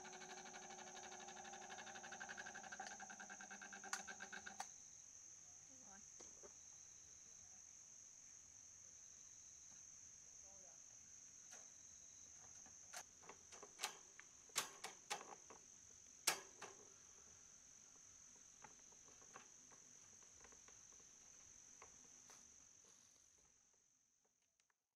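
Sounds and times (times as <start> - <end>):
insect chirring: 0.0 - 24.6
clicks on fan grille: 16.3 - 16.8.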